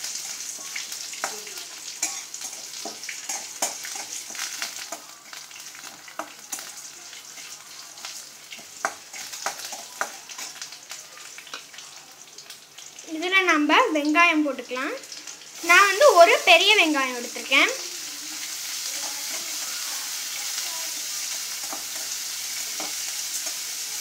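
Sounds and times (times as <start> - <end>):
oil sizzling: 0.0 - 24.0
spatula scraping and tapping pan: 0.1 - 6.8, 8.5 - 10.7, 21.2 - 23.7.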